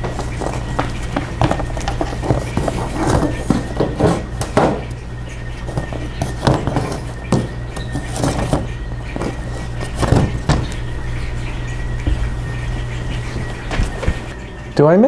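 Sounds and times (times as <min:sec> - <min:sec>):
rocks knocking and scraping: 0:00.0 - 0:04.9
low background hum: 0:00.0 - 0:15.0.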